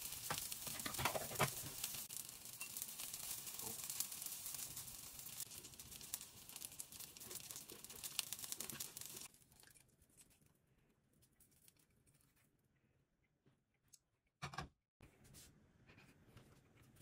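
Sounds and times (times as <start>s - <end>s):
chicken sizzling in a pan: 0.0s - 9.4s.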